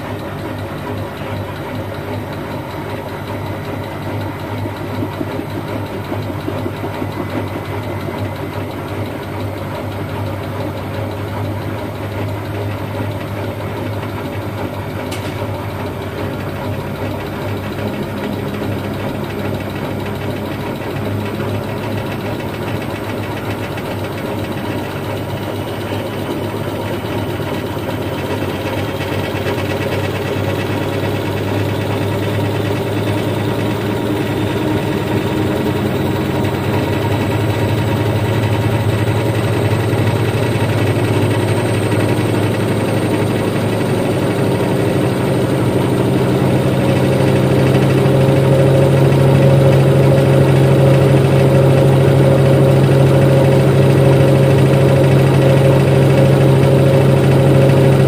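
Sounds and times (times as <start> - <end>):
washing machine drum hum: 0.0 - 58.0
faint rising whine: 25.1 - 58.0.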